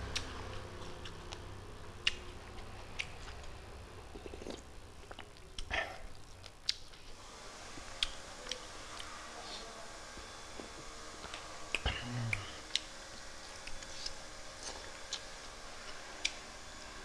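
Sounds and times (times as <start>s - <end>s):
mouth clicks and smacks chewing: 0.9s - 3.5s, 4.1s - 7.0s
person humming: 11.7s - 12.9s.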